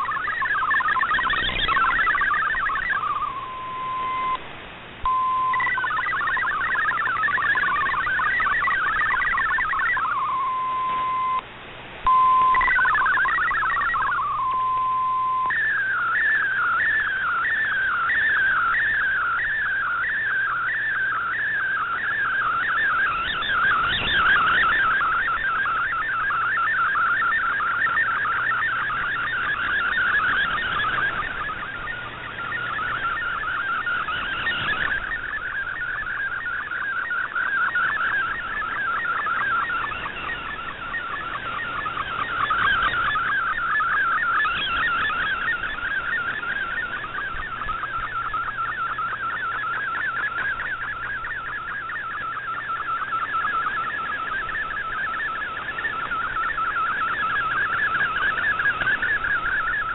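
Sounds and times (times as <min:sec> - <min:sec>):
warbling radio data tone: 0:00.0 - 0:59.9.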